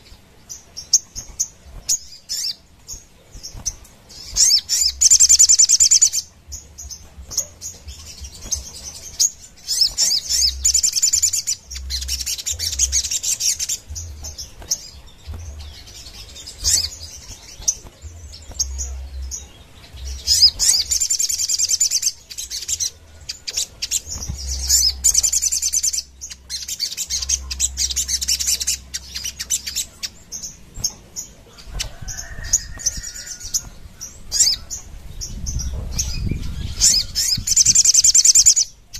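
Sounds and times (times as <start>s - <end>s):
bird singing high trills: 0.0s - 38.8s.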